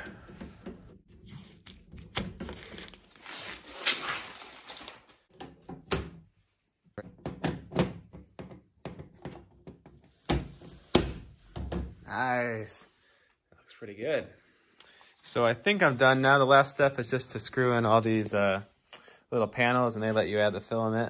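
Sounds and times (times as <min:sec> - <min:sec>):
plastic film peeling and crinkling: 0:01.2 - 0:05.3
panels clicking and knocking: 0:07.0 - 0:12.0.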